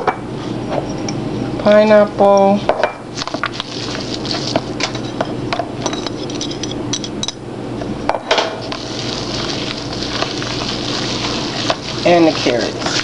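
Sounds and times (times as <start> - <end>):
spatula scraping batter in bowl: 8.7 - 13.0.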